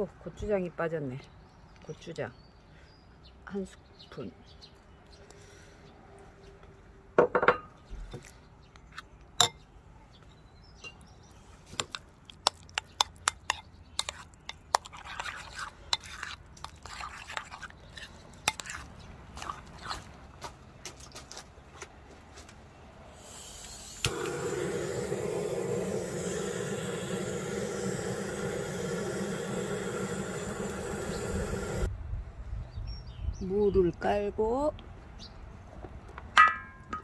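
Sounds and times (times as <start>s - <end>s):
metal spoon scraping ceramic bowl: 12.8s - 20.0s
gas torch hissing: 23.2s - 31.9s.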